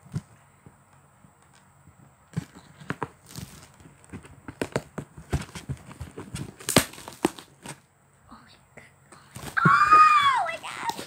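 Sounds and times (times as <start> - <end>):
taps on cardboard box: 4.1 - 7.8.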